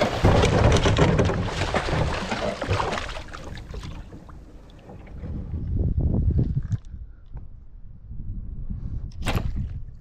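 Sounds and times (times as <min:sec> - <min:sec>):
fish thrashing and splashing: 0:00.0 - 0:04.3.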